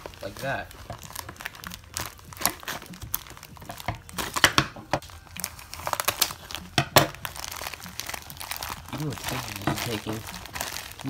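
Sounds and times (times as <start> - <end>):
plastic bag crinkling: 0.0 - 11.0
scissors snipping plastic: 0.0 - 11.0.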